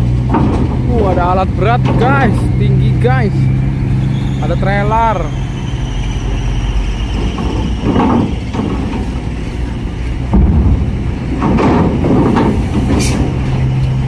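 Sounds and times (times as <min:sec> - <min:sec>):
clattering on steel grating: 0:00.0 - 0:04.6, 0:06.2 - 0:14.0
heavy wheel thump: 0:00.0 - 0:04.7, 0:05.4 - 0:14.0
truck engine drone: 0:00.0 - 0:14.0.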